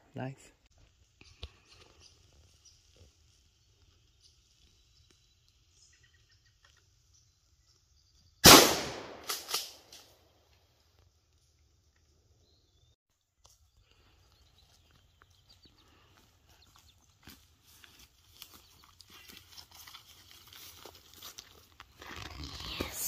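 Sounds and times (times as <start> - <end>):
loud gunshot with echo: 8.4 - 9.5
quieter sharp cracks: 8.4 - 10.1.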